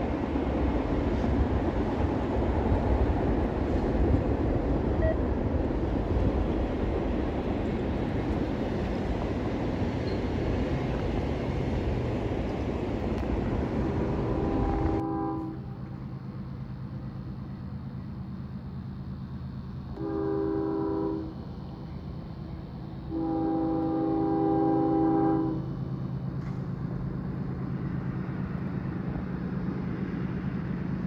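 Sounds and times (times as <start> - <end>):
train rumble: 0.0 - 31.0
locomotive horn: 14.2 - 15.7, 20.0 - 21.4, 23.1 - 25.7.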